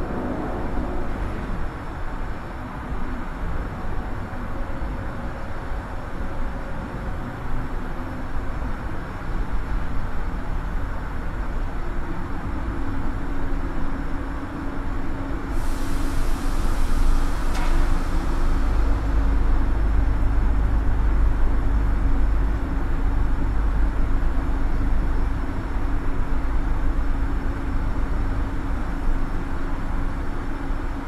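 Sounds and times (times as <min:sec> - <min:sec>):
heavy low rumble with hum: 0:00.0 - 0:31.0
hiss: 0:15.5 - 0:19.7.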